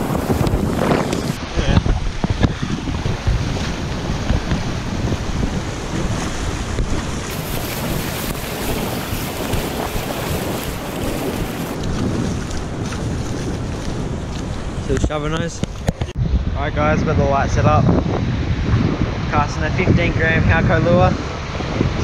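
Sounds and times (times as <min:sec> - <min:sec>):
shallow surf washing: 0:00.0 - 0:16.2
wind buffeting microphone: 0:00.0 - 0:22.0.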